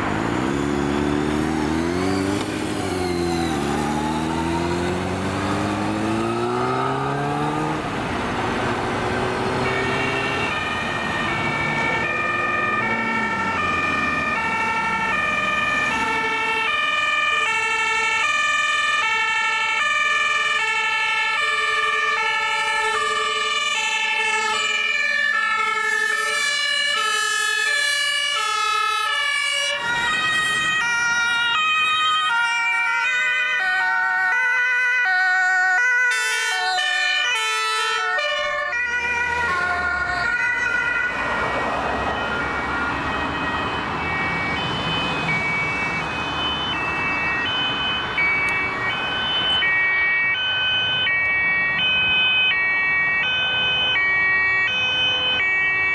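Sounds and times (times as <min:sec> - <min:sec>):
two-tone sirens: 0:00.0 - 0:55.9
vehicles passing: 0:00.0 - 0:55.9.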